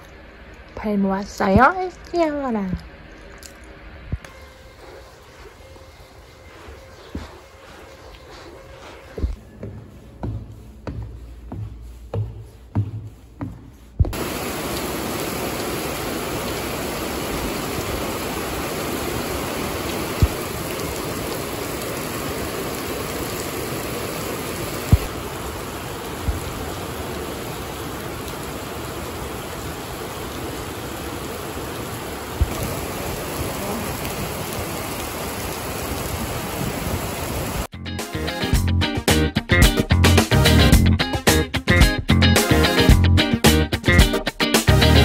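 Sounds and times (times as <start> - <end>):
heavy rain on hard surface: 4.2 - 9.4, 14.1 - 37.7.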